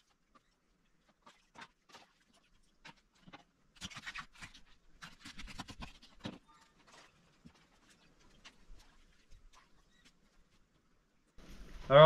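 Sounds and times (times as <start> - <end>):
crayfish shells clicking and scraping: 0.0 - 9.6.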